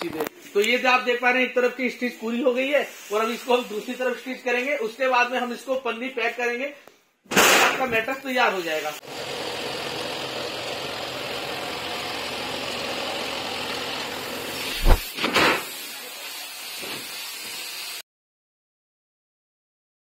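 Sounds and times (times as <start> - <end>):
workshop machinery humming: 9.0 - 15.1
mattress thumping down: 14.8 - 15.2.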